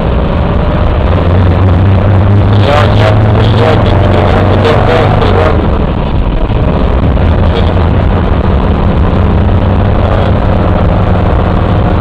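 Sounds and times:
car engine humming: 0.0 - 12.0
tyre and road noise: 0.0 - 12.0.

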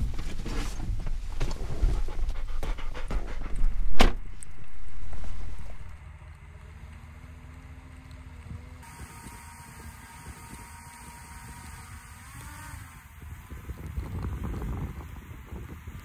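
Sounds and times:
dog panting: 1.4 - 4.0.

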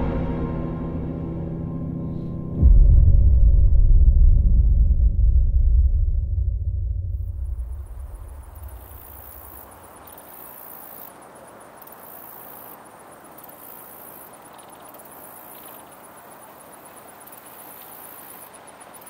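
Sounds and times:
steady background rush: 0.0 - 10.7
high-pitched insects buzzing: 7.6 - 19.0.

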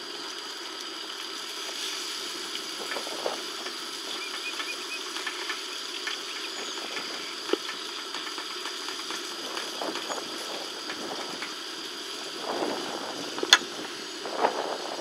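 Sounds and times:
faint high bird chirps: 4.1 - 7.4.

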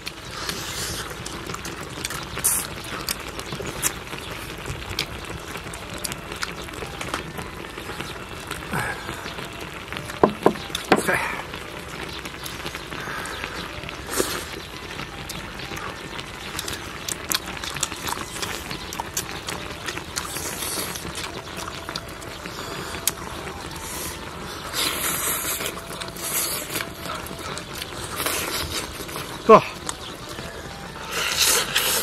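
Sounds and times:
slurping: 0.1 - 4.6, 23.8 - 30.0, 31.0 - 32.0.

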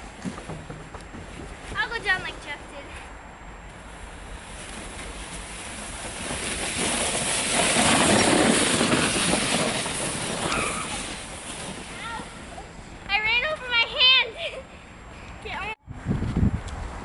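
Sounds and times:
board sliding over snow: 3.9 - 12.7.

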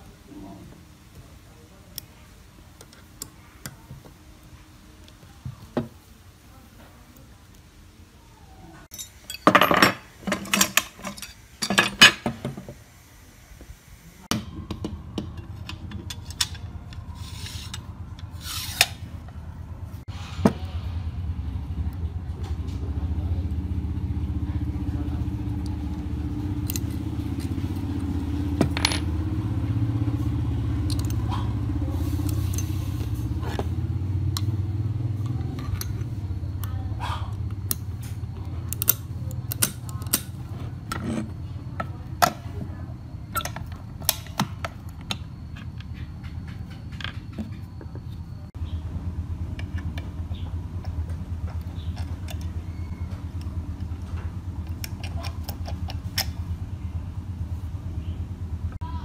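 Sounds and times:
metal parts clicking and scraping: 8.9 - 12.4, 15.2 - 19.4, 26.6 - 27.8, 30.8 - 31.3, 31.9 - 33.7, 35.2 - 36.7, 37.5 - 42.6, 43.2 - 48.3, 50.8 - 56.5
low steady rumble: 14.2 - 59.0.

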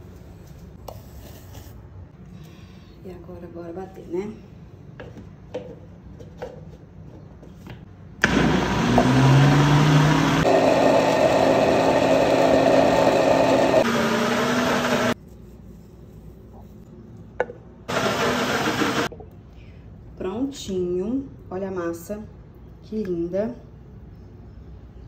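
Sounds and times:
blender motor running: 8.2 - 15.2, 17.9 - 19.1.

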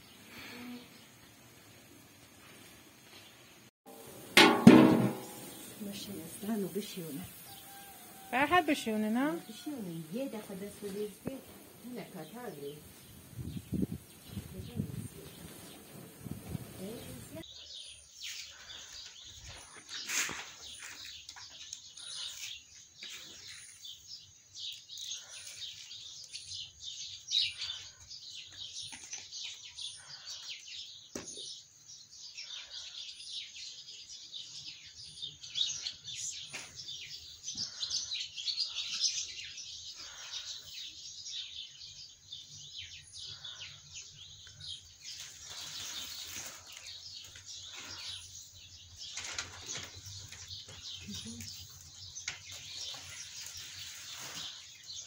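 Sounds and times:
bird chirping: 16.8 - 55.0
grains rustling between hands: 45.0 - 48.1.

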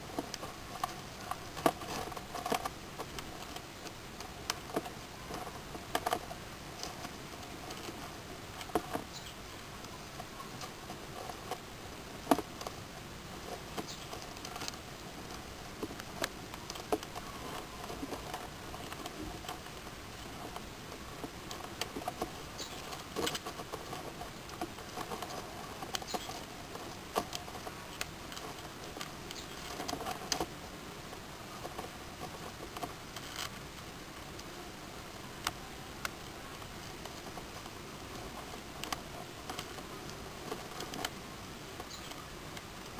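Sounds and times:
crab shells clicking and knocking: 0.1 - 9.2, 9.8 - 34.5.

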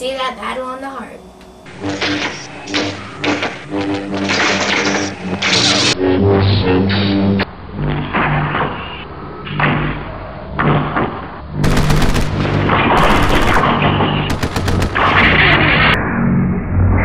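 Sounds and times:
machine-gun fire sound effects: 1.7 - 6.0, 11.6 - 16.0.

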